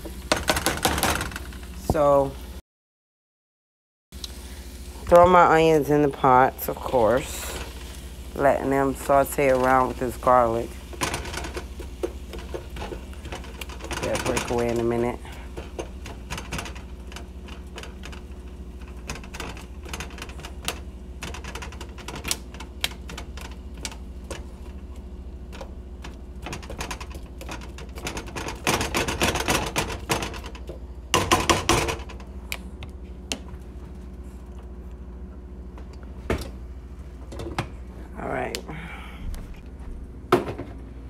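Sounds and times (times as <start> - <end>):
onions sauteing in oil: 4.2 - 30.8.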